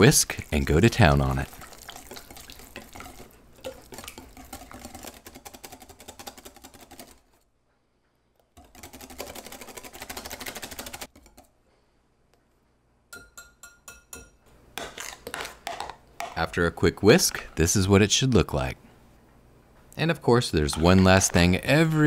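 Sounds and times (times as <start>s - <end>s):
whisk clattering in glass bowl: 1.5s - 7.2s, 8.6s - 11.1s.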